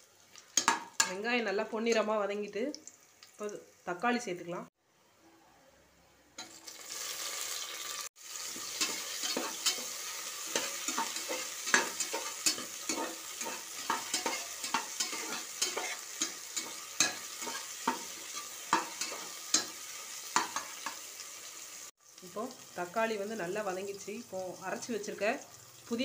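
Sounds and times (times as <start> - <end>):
onions sizzling in hot oil: 0.0 - 4.3, 6.4 - 26.0
metal spatula scraping a pan: 8.4 - 21.0.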